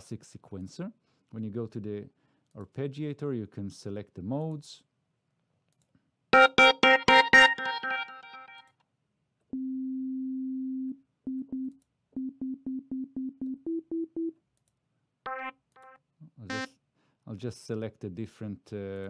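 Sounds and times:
synthesizer arpeggio: 6.4 - 8.6, 15.3 - 16.7.

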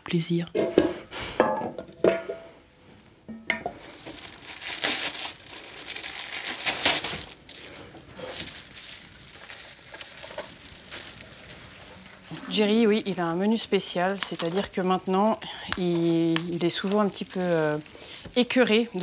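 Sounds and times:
metal bowls clinking and scraping: 0.5 - 2.6, 3.3 - 4.3.

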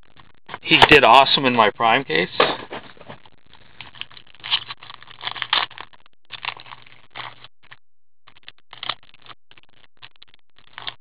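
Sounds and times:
card packaging scraping and crinkling: 3.8 - 7.5.

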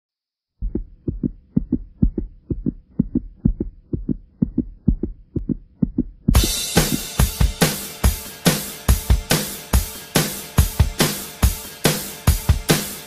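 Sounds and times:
heartbeat thumps: 0.6 - 7.6
drum-kit music: 0.6 - 13.0.

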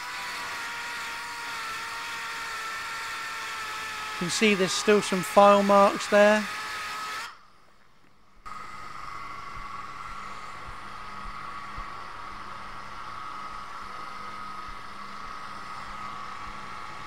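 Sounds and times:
belt sander motor whine: 0.0 - 7.4.

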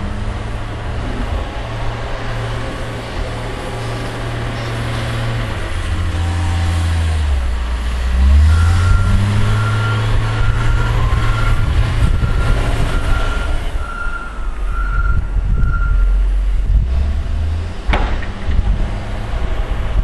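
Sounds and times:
loader diesel engine revving: 0.0 - 20.0
backup alarm beeping: 8.5 - 16.1.

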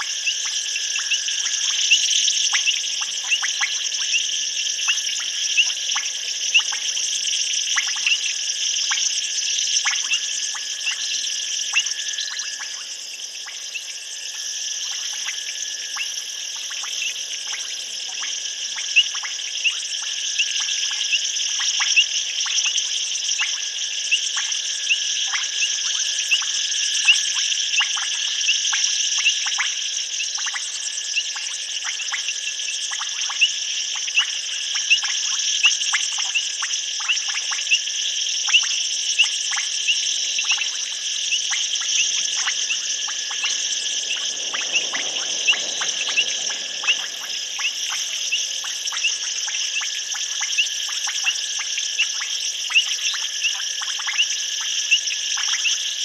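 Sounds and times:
high-pitched insect trilling: 0.0 - 56.0
sharp clicking calls: 44.6 - 55.8.

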